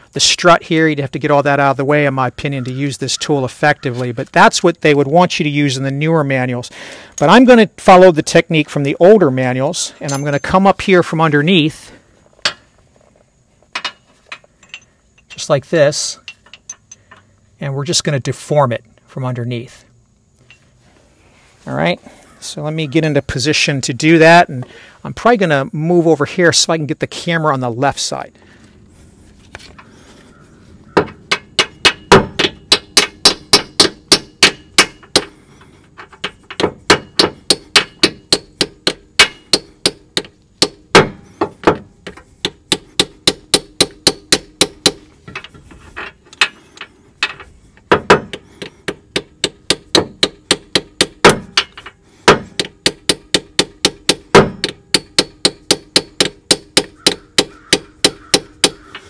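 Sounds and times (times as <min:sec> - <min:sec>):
hammer blows ringing on metal: 0:31.0 - 0:35.3, 0:36.9 - 0:41.2, 0:52.3 - 0:58.9.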